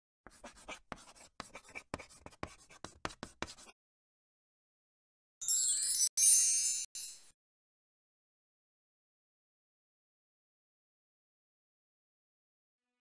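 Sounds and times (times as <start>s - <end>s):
pen scratching strokes: 0.3s - 3.8s.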